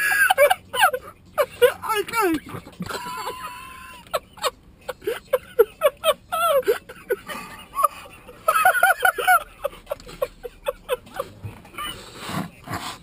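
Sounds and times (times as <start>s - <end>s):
men laughing: 0.0s - 12.9s.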